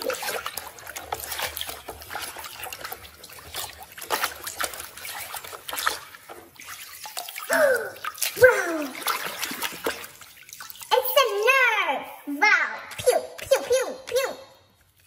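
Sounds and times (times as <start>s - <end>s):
water sloshing in plastic basin: 0.0s - 11.5s
water trickling: 0.0s - 11.6s.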